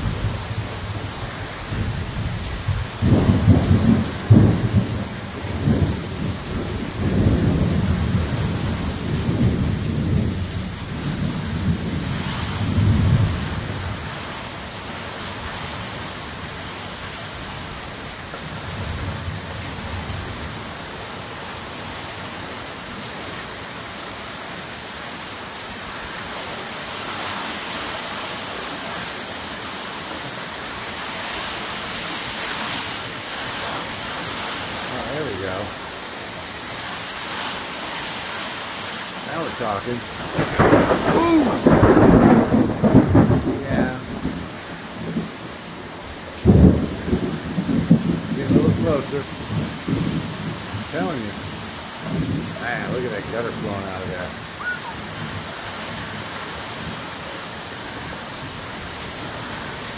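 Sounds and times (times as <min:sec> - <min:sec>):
thunder rumbling: 0:00.0 - 0:14.3, 0:39.2 - 0:45.5, 0:46.4 - 0:55.5
heavy rain: 0:00.0 - 0:59.9.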